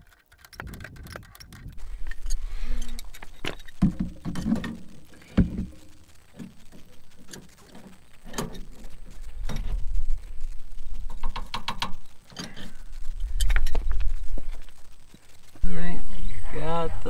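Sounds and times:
low rumble: 7.9s - 17.0s.

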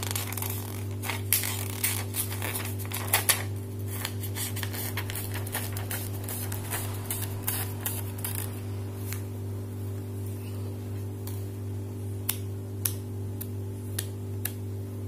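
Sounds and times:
paper crackling: 0.0s - 9.3s
steady low hum: 0.0s - 15.0s.

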